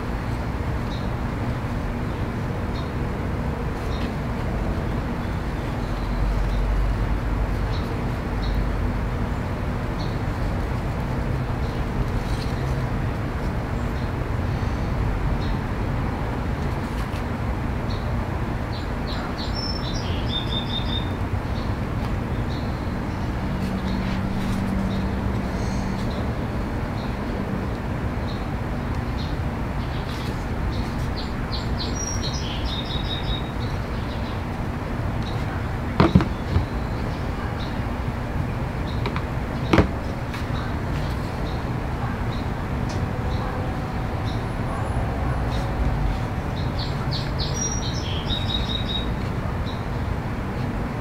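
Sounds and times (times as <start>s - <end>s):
bird chirping and trilling: 31.2s - 34.4s
plastic part knocking on mat: 36.0s - 36.7s, 39.0s - 40.0s.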